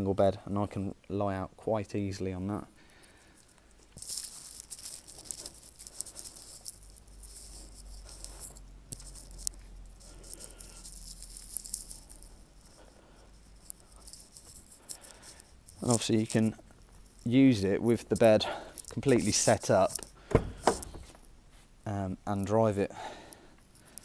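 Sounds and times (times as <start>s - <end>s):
phone handling rustle: 3.2s - 21.3s
footsteps: 3.8s - 21.7s.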